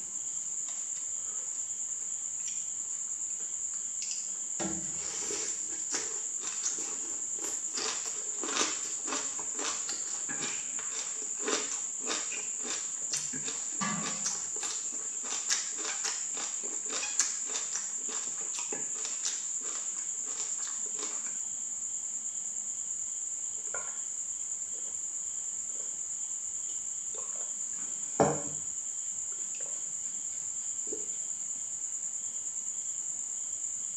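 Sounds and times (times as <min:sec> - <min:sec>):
crickets chirring: 0:00.0 - 0:33.9
crunching and chewing: 0:05.1 - 0:21.5
glass set down on wooden table: 0:28.2 - 0:28.6.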